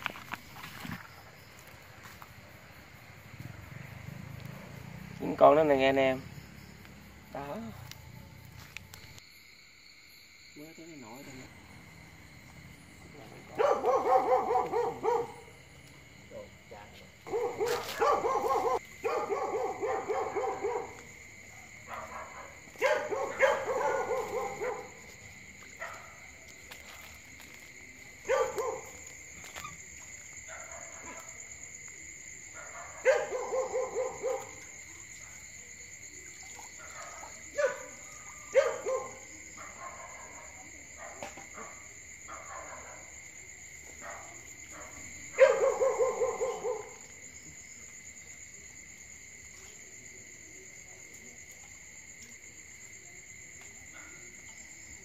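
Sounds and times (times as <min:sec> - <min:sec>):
night insects chorus: 0:00.0 - 0:55.0
dog barking: 0:13.4 - 0:15.6, 0:17.2 - 0:25.2, 0:25.8 - 0:26.5, 0:28.2 - 0:29.7, 0:30.5 - 0:31.4, 0:32.5 - 0:35.4, 0:36.5 - 0:43.2, 0:43.9 - 0:47.2.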